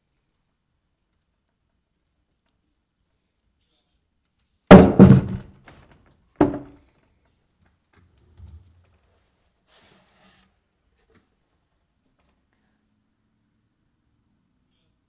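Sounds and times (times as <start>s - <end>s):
sign falling onto a desk: 4.7s - 5.8s, 6.4s - 6.7s.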